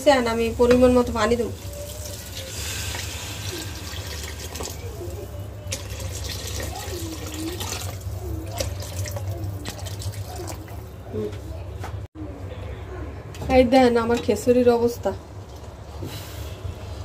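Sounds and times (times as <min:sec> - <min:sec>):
water pouring into a pot: 0:01.4 - 0:10.8.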